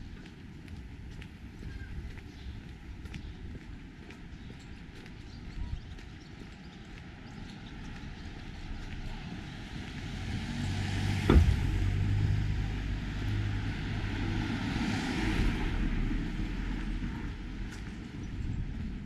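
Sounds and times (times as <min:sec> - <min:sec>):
vehicle engine passing: 0:09.1 - 0:17.7
sharp thump: 0:11.2 - 0:12.3.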